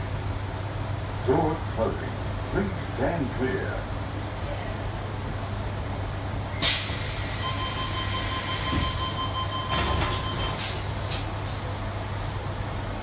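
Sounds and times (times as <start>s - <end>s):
low hum of train: 0.0s - 13.0s
air hiss from train doors: 6.6s - 9.0s, 10.0s - 11.8s
door warning tone: 7.4s - 10.6s.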